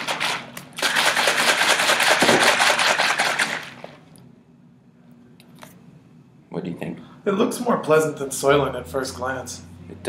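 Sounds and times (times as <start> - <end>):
liquid shaken in plastic pitcher: 0.0 - 4.0.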